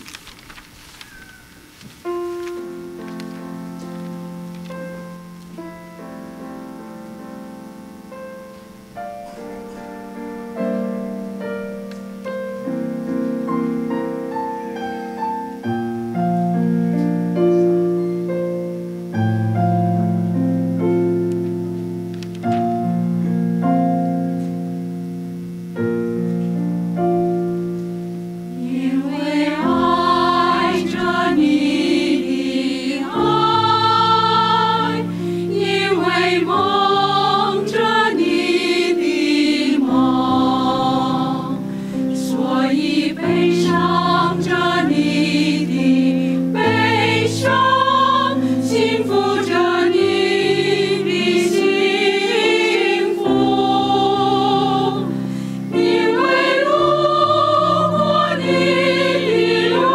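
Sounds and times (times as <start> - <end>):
slow piano chords: 1.0 - 59.9
choir singing: 28.4 - 59.9.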